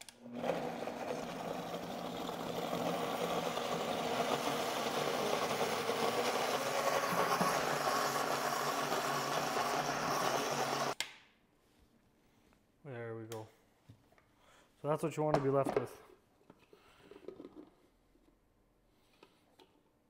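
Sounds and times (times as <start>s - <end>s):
blender motor running: 0.2s - 11.0s.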